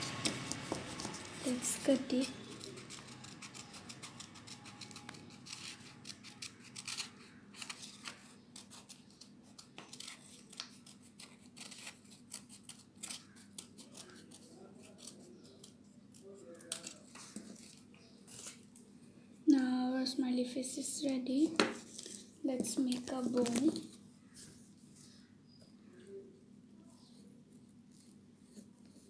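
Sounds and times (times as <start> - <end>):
scissors snipping paper: 0.0 - 18.6.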